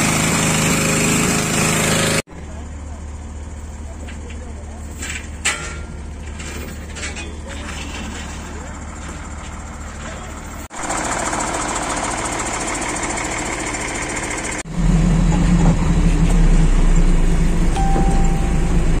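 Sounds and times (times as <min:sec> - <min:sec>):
heavy diesel engine running: 0:00.0 - 0:19.0
brief high tone: 0:17.8 - 0:19.0.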